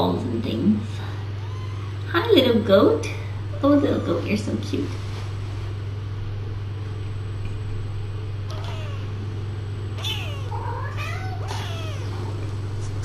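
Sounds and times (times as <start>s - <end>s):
steady low hum: 0.0s - 13.0s
kittens meowing: 1.4s - 2.0s, 8.5s - 9.2s, 10.0s - 12.4s.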